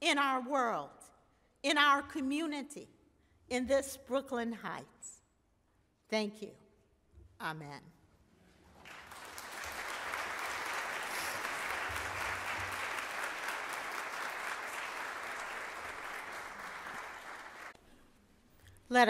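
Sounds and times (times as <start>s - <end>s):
congregation applauding: 8.7s - 17.8s.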